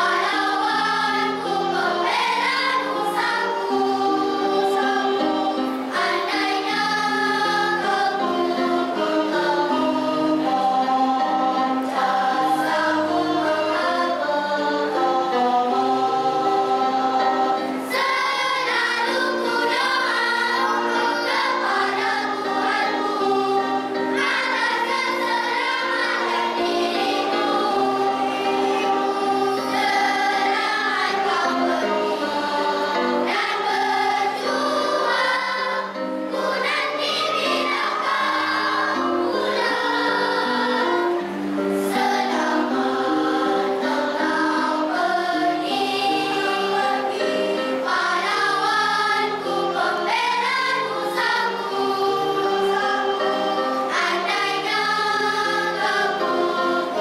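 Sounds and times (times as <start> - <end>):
children's choir singing: 0.0 - 57.0.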